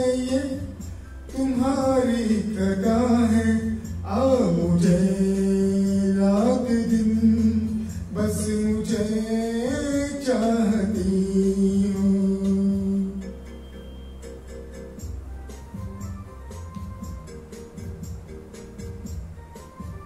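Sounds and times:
man singing into microphone: 0:00.0 - 0:13.4.

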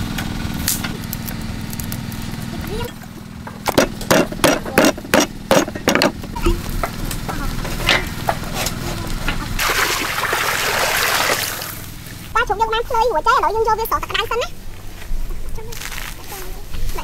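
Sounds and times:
cleaver chopping on wooden block: 0:03.6 - 0:06.2.

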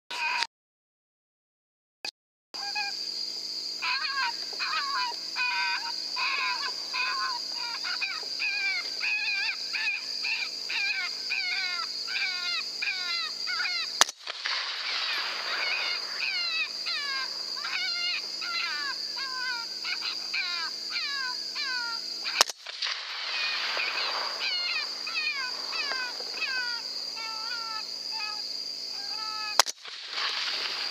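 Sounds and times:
high squealing calls: 0:03.8 - 0:14.1, 0:14.7 - 0:29.7
sharp click: 0:22.4 - 0:22.7, 0:29.6 - 0:29.8.

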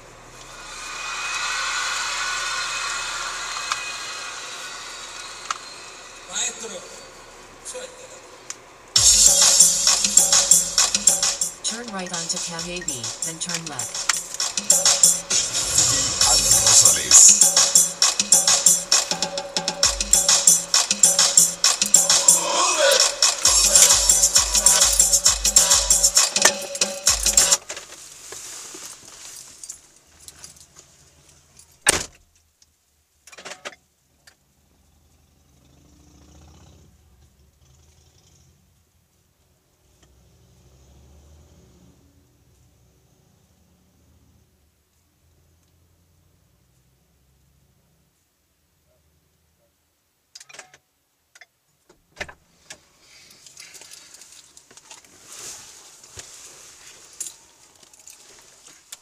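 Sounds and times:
car stereo music: 0:09.0 - 0:27.6
jangling rustle: 0:28.8 - 0:31.8.

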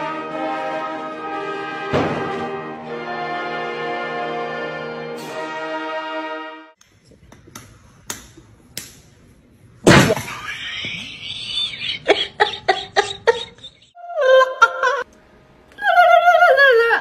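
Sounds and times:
brass chord: 0:00.0 - 0:06.8.

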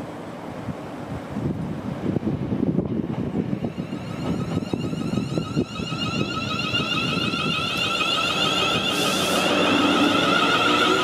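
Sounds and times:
train wheels rumbling on track: 0:00.0 - 0:11.0
electric train whine: 0:02.4 - 0:11.0.

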